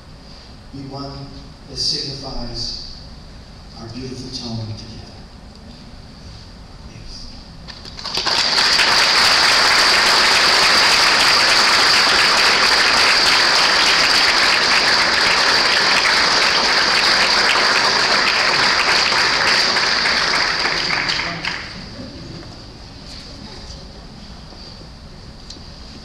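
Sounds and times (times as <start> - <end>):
congregation applauding: 7.7 - 22.1.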